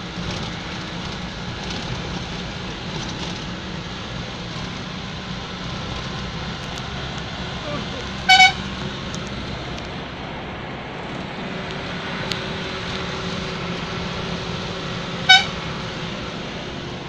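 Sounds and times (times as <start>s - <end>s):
vehicle engine and road noise: 0.0s - 17.0s
car horn toots: 8.2s - 8.8s, 15.2s - 15.7s.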